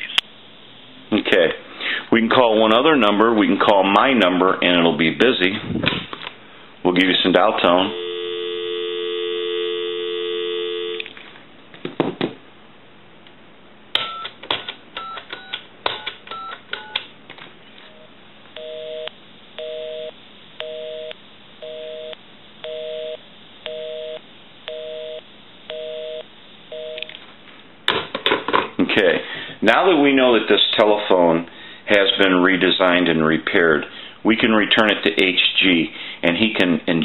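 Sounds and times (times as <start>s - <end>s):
telephone busy signal beeping: 7.9s - 11.0s, 18.6s - 27.1s
telephone dial tone: 8.0s - 11.1s, 15.0s - 17.0s
touch-tone digits dialing: 14.0s - 17.0s.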